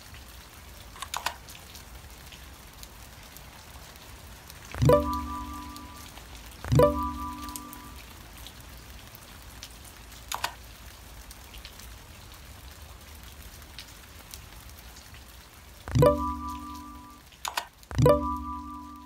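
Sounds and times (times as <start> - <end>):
rain pattering: 0.0 - 19.0
held tone: 15.9 - 17.2.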